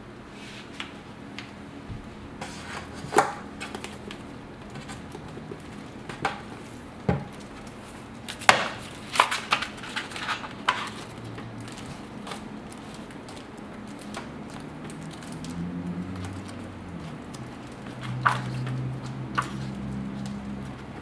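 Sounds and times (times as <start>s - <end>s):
pages rustling: 2.4s - 21.0s.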